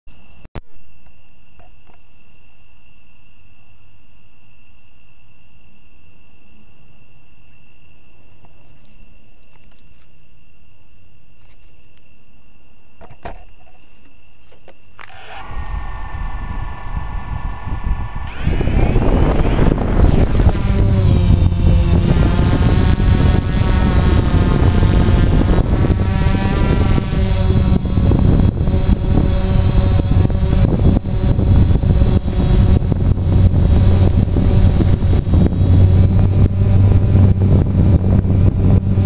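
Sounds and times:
drone propellers and motors whining: 15.0 - 39.0.

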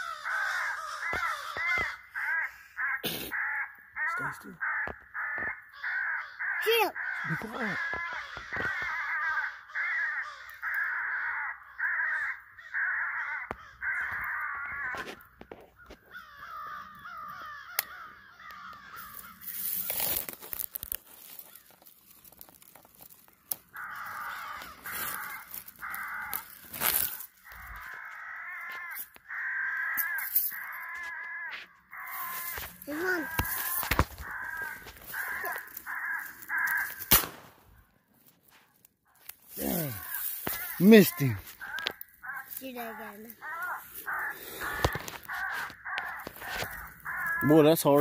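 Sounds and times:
crows cawing: 0.0 - 48.0
handling rustle: 19.0 - 29.1, 38.2 - 48.0.

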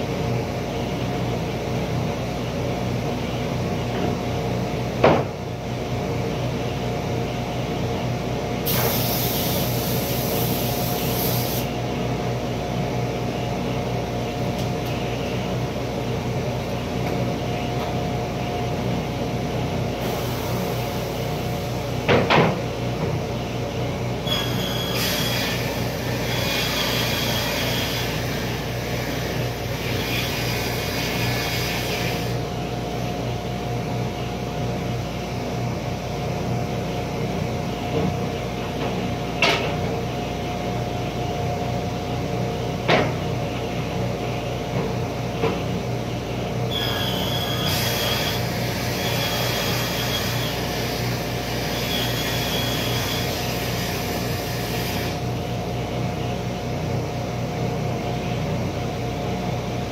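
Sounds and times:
table saw running: 24.2 - 32.4, 46.7 - 55.2.

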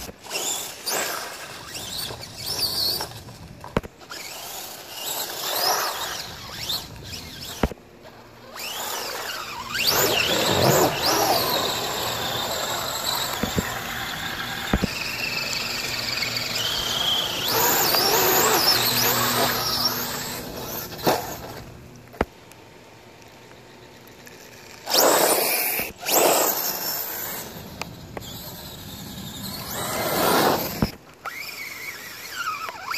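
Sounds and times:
electric motor whining: 8.4 - 21.8.

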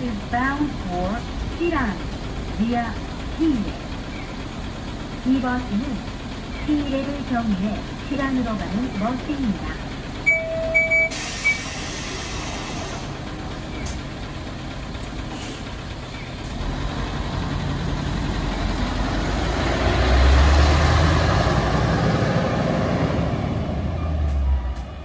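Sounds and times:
diesel engine revving: 0.0 - 25.0
bus door closing: 10.2 - 14.2.

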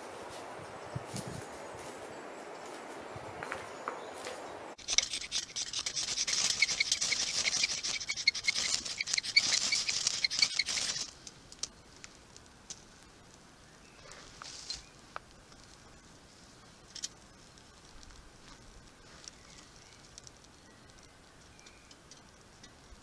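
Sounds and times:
fire steel rasping scrapes: 4.8 - 11.1.

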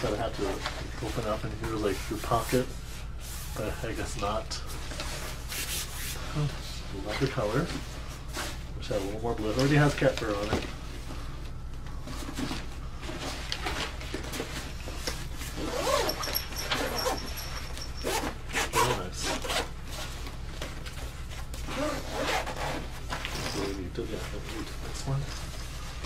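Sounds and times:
nylon fabric rustling: 12.0 - 26.0
zippers being pulled: 15.5 - 19.7, 21.6 - 23.8.

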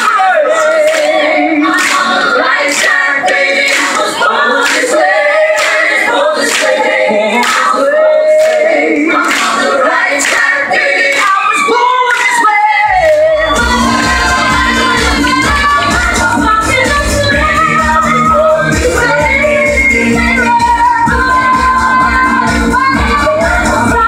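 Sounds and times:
group singing over a beat: 0.0 - 24.0
bass part: 12.9 - 20.3.

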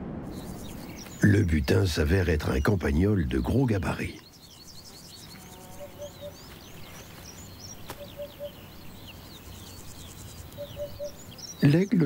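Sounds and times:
small birds chirping: 0.2 - 12.0
low three-note hooting call: 5.5 - 6.4.

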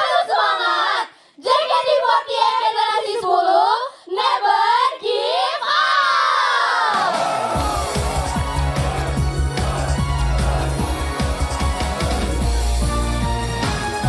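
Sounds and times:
women singing unaccompanied: 0.0 - 5.9.

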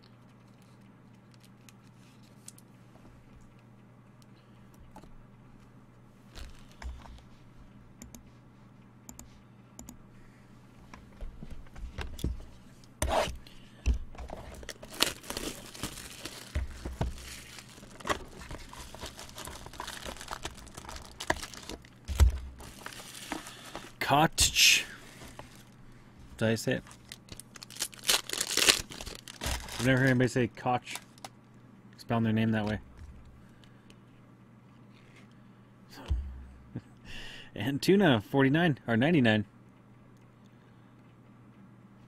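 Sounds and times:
low electrical hum: 0.0 - 42.0
plastic shrink-wrap tearing: 14.6 - 23.9, 26.7 - 31.3.

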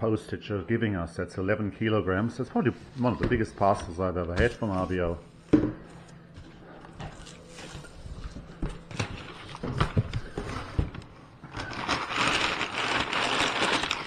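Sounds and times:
packing paper crumpling: 11.4 - 14.0.

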